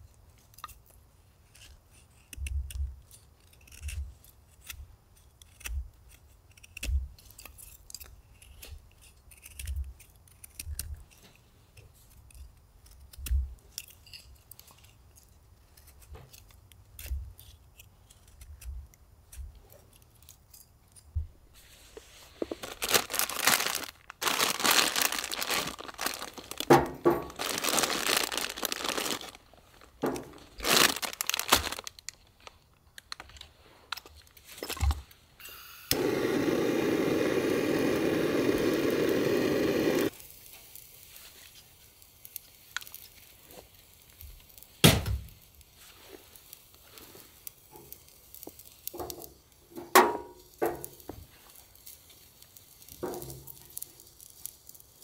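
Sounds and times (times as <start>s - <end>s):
packaging tearing and crinkling: 22.1s - 35.1s, 35.9s - 49.0s, 50.8s - 55.0s.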